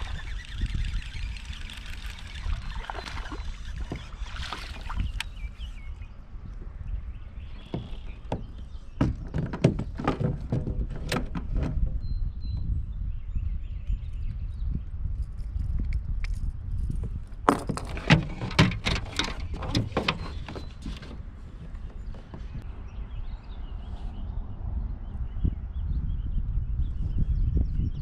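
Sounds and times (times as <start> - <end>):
knocks and rattles on kayak: 0.0 - 5.4, 7.4 - 12.1, 17.4 - 22.6.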